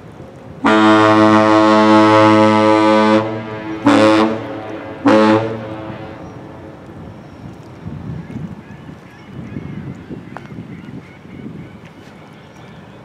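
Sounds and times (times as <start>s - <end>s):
ship horn blasts: 0.6s - 6.9s.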